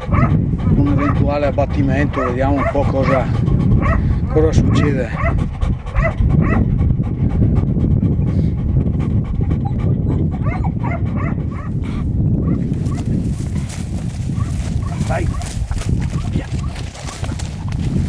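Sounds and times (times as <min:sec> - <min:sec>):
dogs whining and yipping: 0:00.0 - 0:01.2, 0:05.2 - 0:06.6, 0:09.4 - 0:11.8
steady low rumble: 0:00.0 - 0:18.0.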